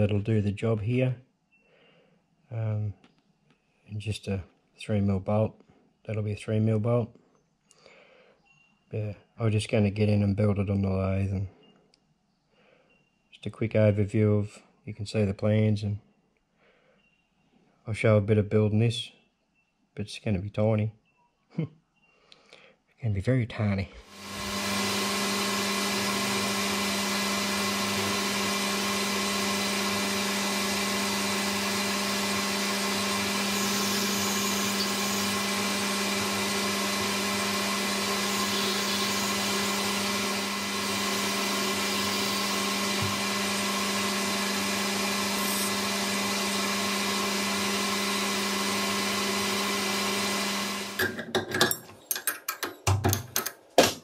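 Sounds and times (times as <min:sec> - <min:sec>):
metal lathe motor humming: 0:24.1 - 0:51.2
clicks and knocks: 0:51.0 - 0:54.0.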